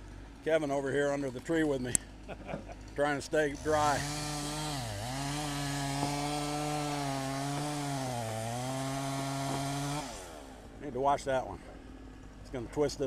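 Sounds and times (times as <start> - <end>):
chainsaw cutting through wood: 1.1 - 11.2.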